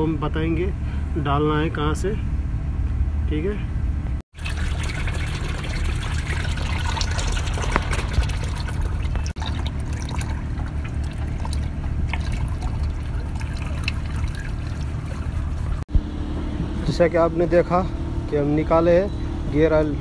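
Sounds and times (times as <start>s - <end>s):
steady low hum: 0.0s - 20.0s
oil pouring into plastic tub: 4.4s - 15.8s.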